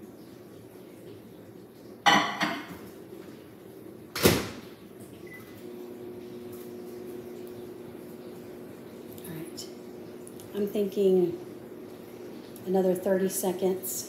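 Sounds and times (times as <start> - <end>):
microwave running hum: 0.0 - 14.0
microwave door shutting: 4.2 - 4.6.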